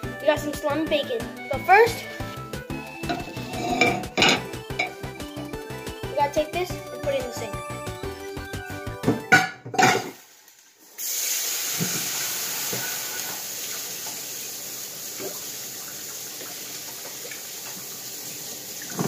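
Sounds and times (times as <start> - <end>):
water running from a tap: 0.0 - 6.1, 9.8 - 19.0.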